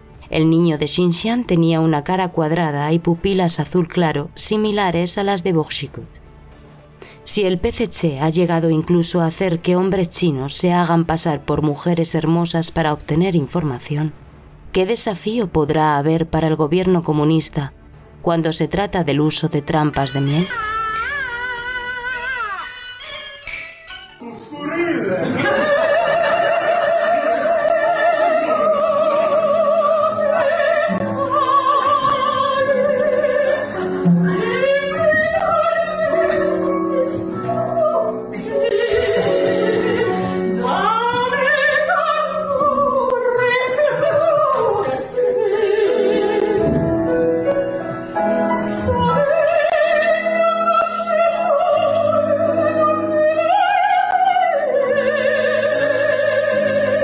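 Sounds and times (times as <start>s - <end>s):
woman singing operatically: 25.4s - 46.8s, 48.4s - 57.0s.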